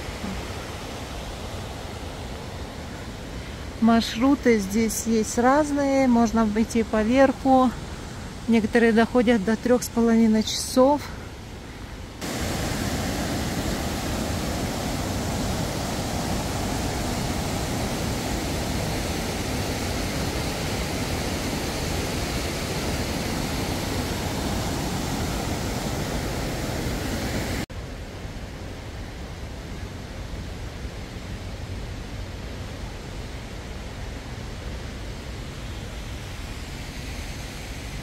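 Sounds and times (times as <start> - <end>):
stream running over rocks: 11.6 - 27.7.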